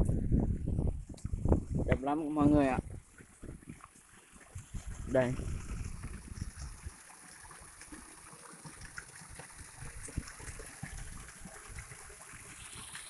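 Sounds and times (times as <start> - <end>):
wind rumble on microphone: 0.0 - 3.8, 4.5 - 7.0, 9.6 - 11.9.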